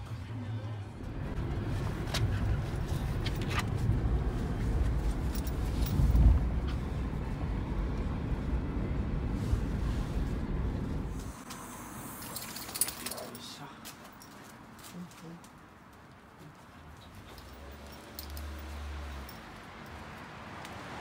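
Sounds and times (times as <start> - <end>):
car road and engine rumble: 0.1 - 21.0.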